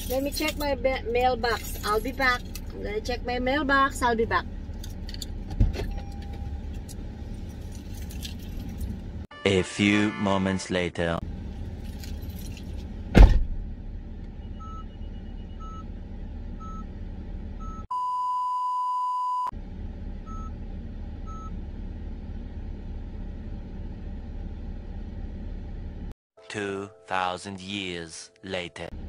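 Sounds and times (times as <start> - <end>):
car engine idling: 0.0 - 9.3, 11.2 - 17.8, 19.6 - 26.1
car warning chime dinging: 5.9 - 6.8
heavy thump: 13.1 - 13.7.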